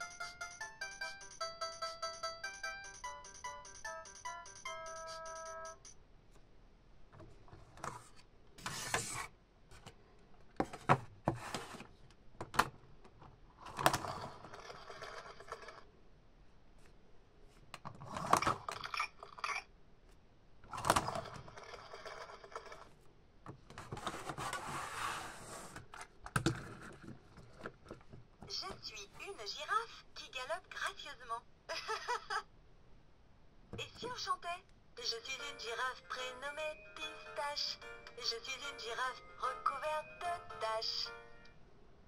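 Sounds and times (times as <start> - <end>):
toy electronic melody: 0.0 - 6.0
plastic toy track clacks and scrapes: 13.6 - 15.8, 20.7 - 23.0, 23.7 - 28.0.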